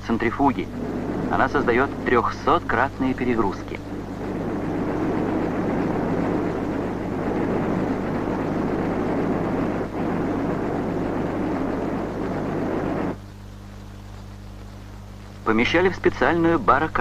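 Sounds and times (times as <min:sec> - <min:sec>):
centrifuge spinning: 0:00.0 - 0:13.3.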